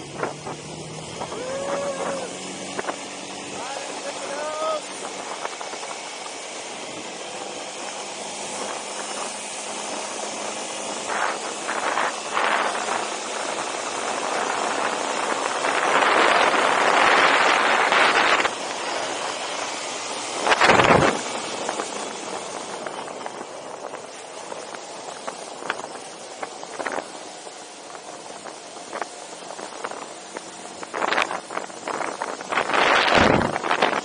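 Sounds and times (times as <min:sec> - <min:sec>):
faint quad engine: 0:00.0 - 0:34.0
wind buffet: 0:00.0 - 0:34.0
wind rushing over microphone: 0:00.0 - 0:34.0.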